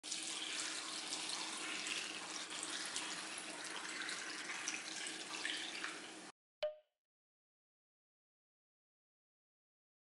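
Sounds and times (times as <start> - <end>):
liquid pouring and splashing: 0.0 - 6.3.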